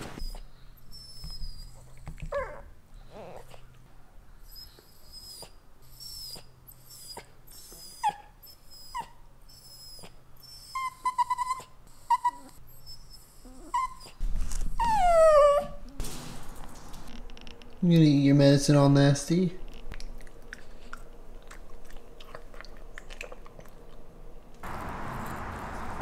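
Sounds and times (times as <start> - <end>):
dog whining: 0.0 - 3.7, 4.4 - 16.0.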